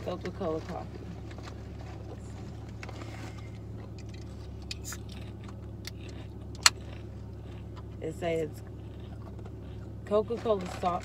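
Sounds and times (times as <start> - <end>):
low car cabin hum: 0.0 - 11.0
person chewing: 2.7 - 8.0, 8.6 - 10.0.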